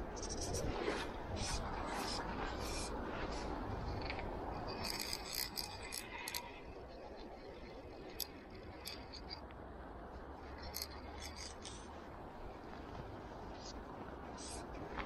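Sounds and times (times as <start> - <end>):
fly reel drag clicking: 4.0 - 6.5.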